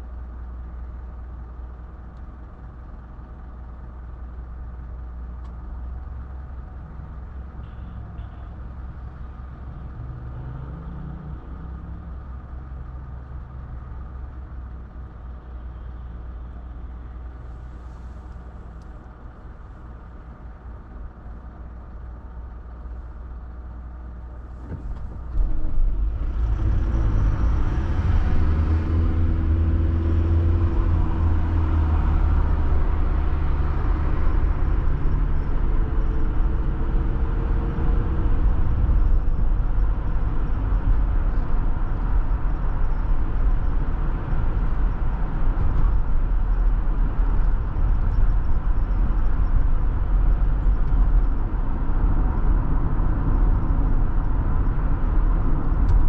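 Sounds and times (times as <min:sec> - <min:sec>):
tyres rumbling on road: 0:00.0 - 0:56.0
car engine accelerating: 0:24.4 - 0:56.0.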